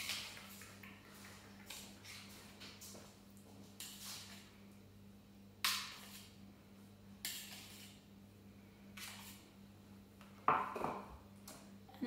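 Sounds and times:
spatula scraping bowl: 5.6 - 6.4, 7.2 - 8.0, 9.0 - 9.5.

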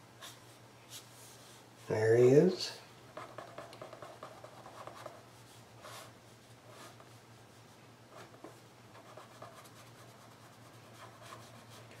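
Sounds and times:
pen scratching on paper: 3.2 - 5.2, 9.0 - 11.8.

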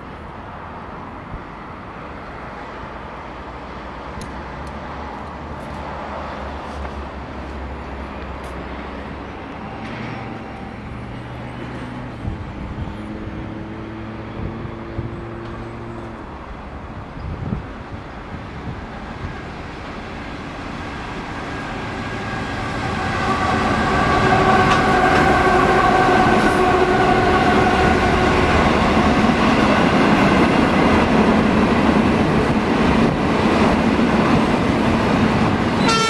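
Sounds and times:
diesel locomotive engine drone: 0.0 - 36.0
held low horn tones: 22.0 - 28.9, 35.8 - 36.0.

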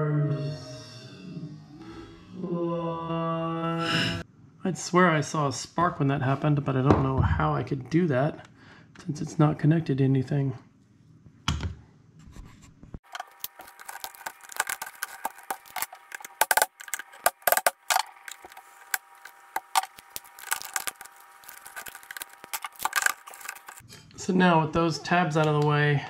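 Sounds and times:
hard plastic clicking and cracking: 13.1 - 23.8.

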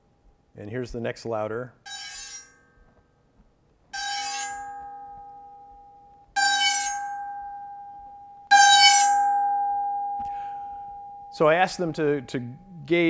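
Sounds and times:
synthetic ringing test tone: 4.0 - 13.0.

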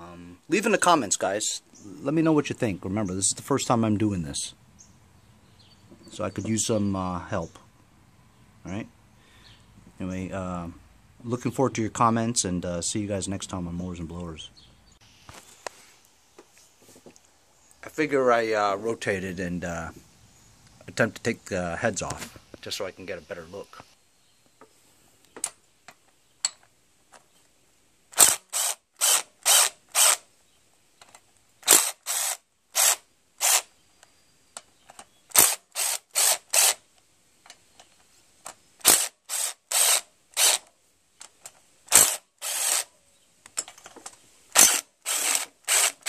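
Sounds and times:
impact driver bursts: 28.2 - 30.2, 31.6 - 33.7, 35.3 - 36.8, 38.8 - 40.6, 41.9 - 42.9, 44.6 - 46.0.

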